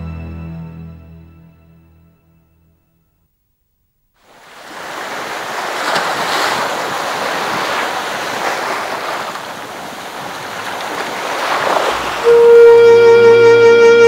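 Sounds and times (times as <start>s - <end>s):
sea waves washing in: 4.2s - 13.3s.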